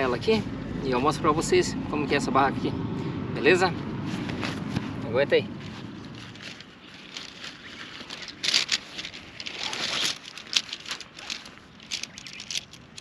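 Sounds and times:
tent fabric and tarp rustling: 0:03.7 - 0:13.0.

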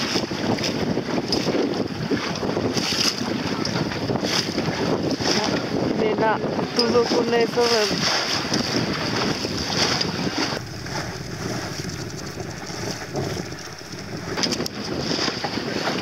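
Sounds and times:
choppy water splashing against boat: 0:00.0 - 0:16.0
wind buffeting microphone: 0:00.0 - 0:16.0.

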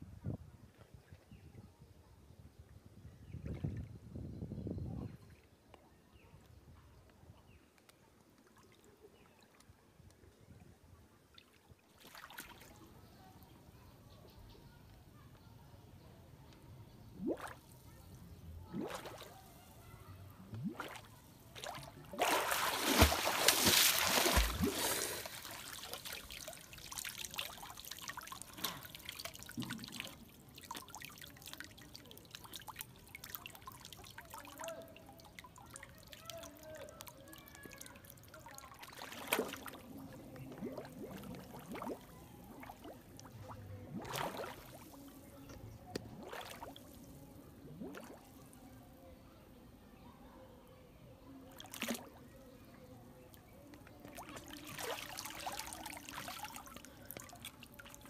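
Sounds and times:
water splashing: 0:18.7 - 0:19.6, 0:20.5 - 0:34.4, 0:38.6 - 0:45.1, 0:54.1 - 0:58.0
water trickling and dripping: 0:20.5 - 0:44.9.

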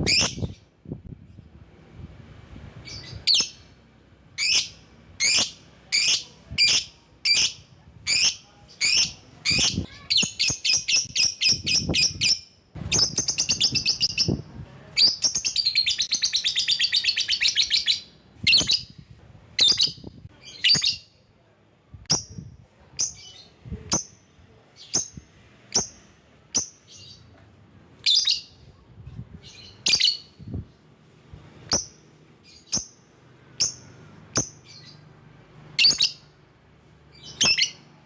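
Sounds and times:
lovebird chirping and trilling: 0:00.0 - 0:00.7, 0:02.8 - 0:03.8, 0:04.4 - 0:19.0, 0:19.6 - 0:21.2, 0:22.1 - 0:22.4, 0:23.0 - 0:27.3, 0:28.0 - 0:28.7, 0:29.4 - 0:30.8, 0:31.6 - 0:35.1, 0:35.8 - 0:36.3, 0:37.1 - 0:37.9.

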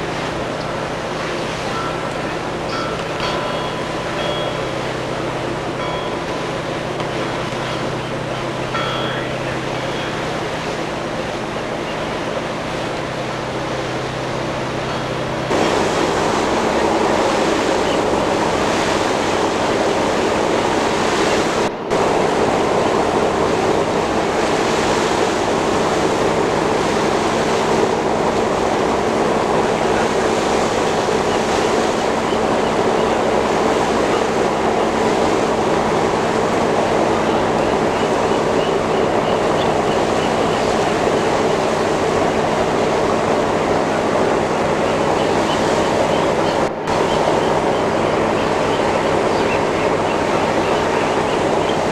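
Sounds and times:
boat engine droning: 0:00.0 - 0:51.9
rushing wind and water: 0:00.0 - 0:51.9.

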